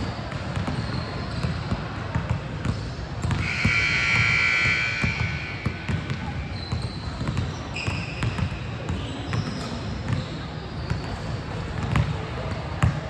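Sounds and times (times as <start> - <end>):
background murmur: 0.0 - 13.0
basketball bouncing on court: 0.0 - 13.0
shoe squeaks: 0.6 - 1.8, 2.7 - 11.5.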